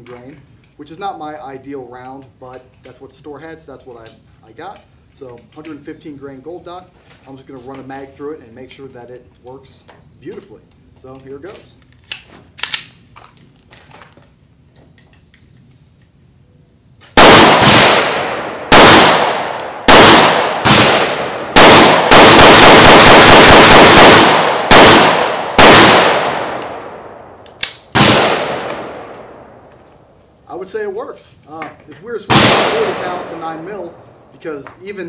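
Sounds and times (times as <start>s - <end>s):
pistol shots: 17.2s - 29.6s, 32.3s - 33.8s.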